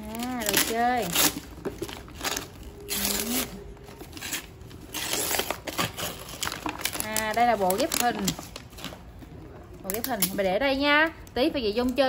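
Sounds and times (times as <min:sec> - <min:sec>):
paper tearing and crinkling: 0:00.0 - 0:09.1.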